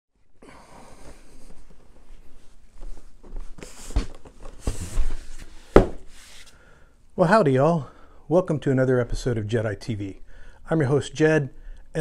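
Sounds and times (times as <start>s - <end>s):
clothing rustle: 0.8s - 6.7s
footsteps on carpet: 0.9s - 6.2s.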